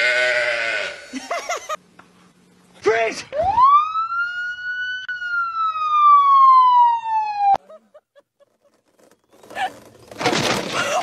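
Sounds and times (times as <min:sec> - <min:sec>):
police siren wail: 0:03.4 - 0:07.6.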